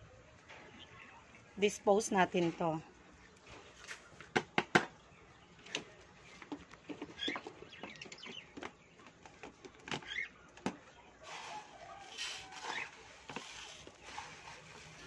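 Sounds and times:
bird cage and feeder cups rattling: 5.6s - 15.0s.

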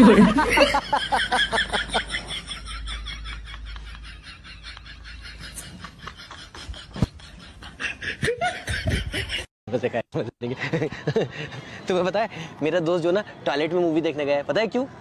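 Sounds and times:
women laughing: 0.0s - 9.5s.

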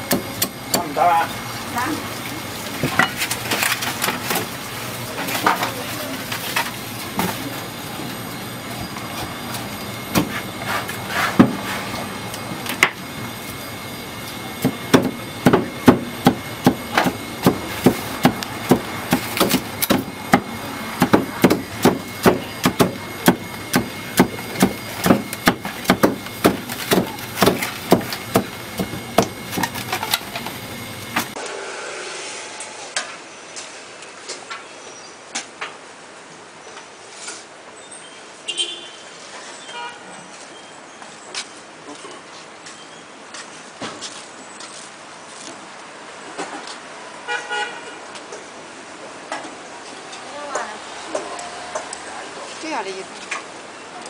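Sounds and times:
cleaver chopping on wooden block: 14.6s - 29.8s.

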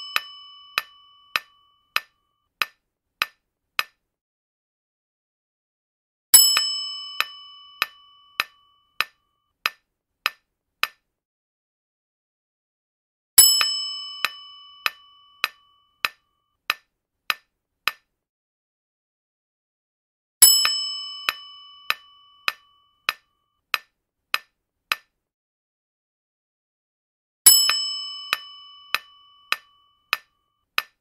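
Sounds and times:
bright bell ding: 0.0s - 1.9s.

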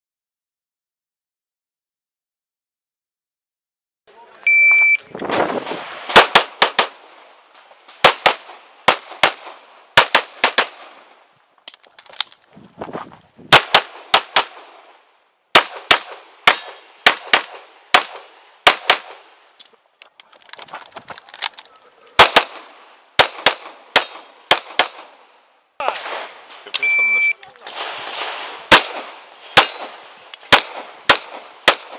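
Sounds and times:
shot timer beep: 4.5s - 5.0s, 26.8s - 27.4s
pistol shots: 5.3s - 7.2s, 7.8s - 11.1s, 13.5s - 14.9s, 15.5s - 19.3s, 22.2s - 25.2s, 27.7s - 31.9s
shooter moving rustle: 11.5s - 13.6s, 19.6s - 22.2s.

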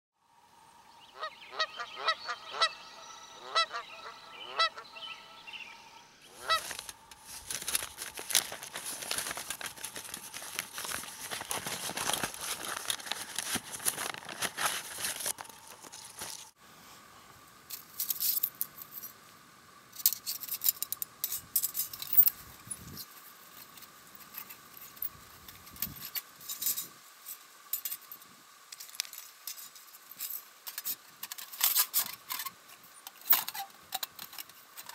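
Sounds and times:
geese honking: 1.1s - 5.6s, 6.2s - 6.9s
packaging rustling and crackling: 6.3s - 16.6s.

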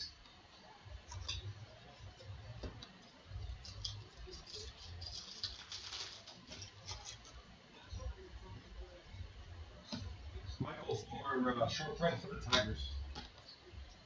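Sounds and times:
plastic wrapper tearing and crinkling: 3.6s - 7.4s
trading cards being shuffled: 3.7s - 7.4s.

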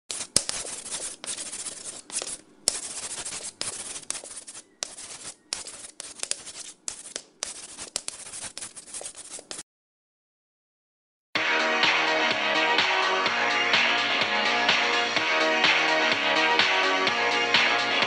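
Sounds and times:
chalk scratching on blackboard: 0.1s - 9.6s.

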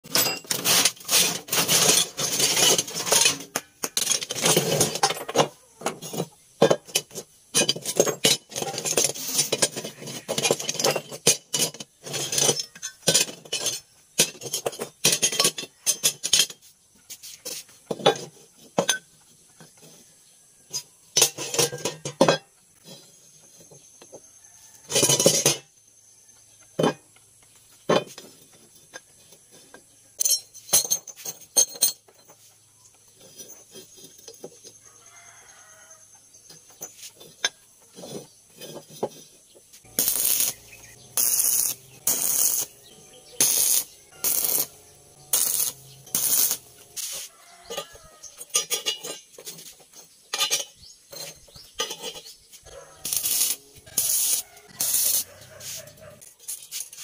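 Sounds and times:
metal parts clanking: 0.0s - 16.7s, 20.7s - 23.3s, 24.8s - 25.7s, 27.9s - 32.5s, 36.5s - 57.0s.

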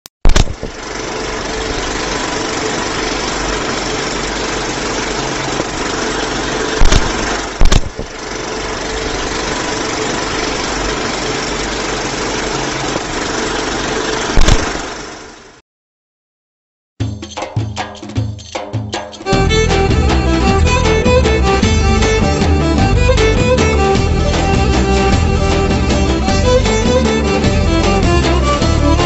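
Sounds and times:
projector loud clicks: 0.3s - 0.8s, 6.7s - 8.2s, 14.3s - 14.9s
film projector whirring: 0.3s - 15.6s.

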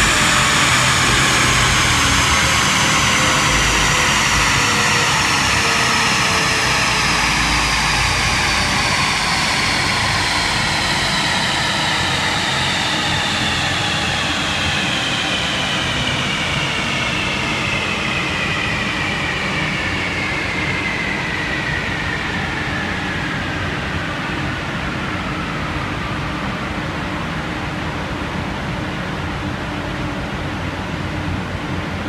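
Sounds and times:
dyno rollers whine falling: 0.0s - 22.4s
rushing noise: 0.0s - 26.6s.

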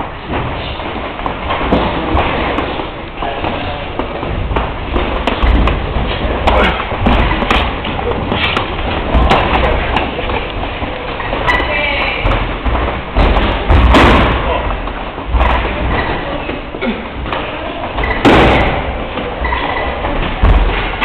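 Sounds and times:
punches and kicks thudding: 4.0s - 10.4s, 12.3s - 14.6s, 18.0s - 19.0s.

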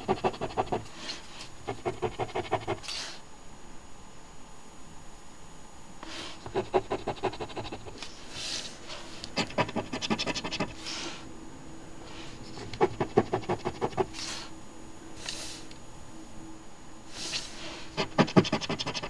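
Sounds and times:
coin scratching a ticket: 6.5s - 8.0s, 9.4s - 10.8s, 18.0s - 19.0s
short hisses: 15.2s - 15.7s.

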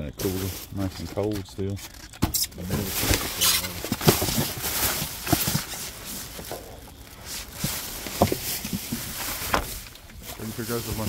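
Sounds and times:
boxes and bags clattering: 0.0s - 11.0s.

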